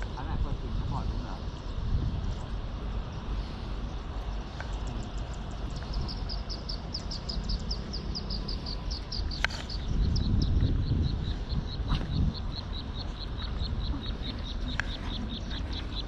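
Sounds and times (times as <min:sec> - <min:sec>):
low outdoor rumble: 0:00.0 - 0:16.0
animal chirping: 0:04.7 - 0:16.0.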